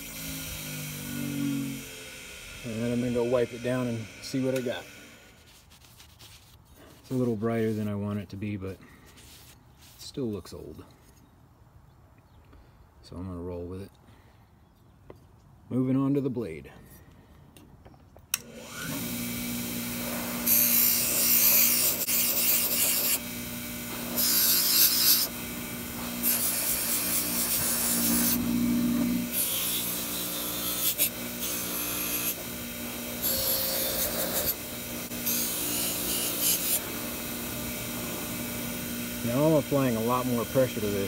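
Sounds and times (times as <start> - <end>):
bench grinder motor humming: 0.0 - 5.5, 18.4 - 41.0
wire wheel scratching metal: 25.9 - 32.5.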